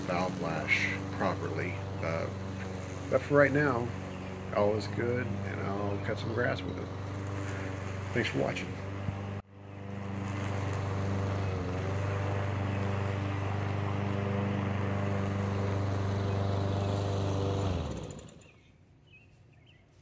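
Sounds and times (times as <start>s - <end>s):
lawn mower engine running: 0.0s - 18.6s
faint bird chirps: 18.4s - 20.0s.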